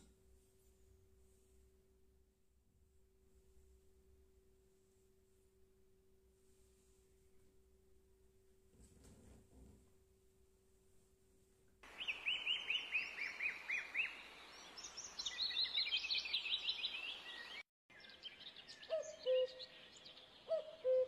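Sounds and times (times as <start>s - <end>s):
steady background hiss: 10.4s - 17.6s
bird chirping and trilling: 11.9s - 21.0s
low whistled bird notes: 11.9s - 21.0s.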